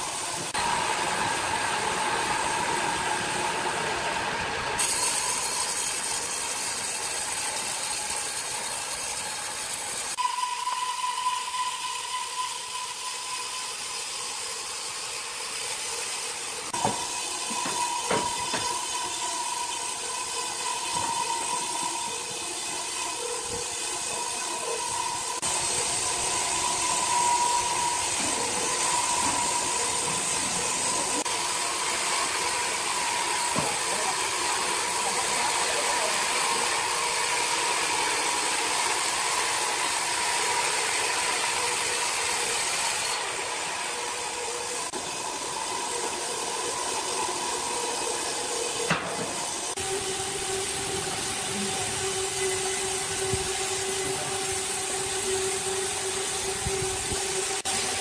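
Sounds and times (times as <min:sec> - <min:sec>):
band saw whine: 0:00.0 - 0:58.0
machine noise hiss: 0:00.0 - 0:58.0
knock: 0:16.8 - 0:18.7.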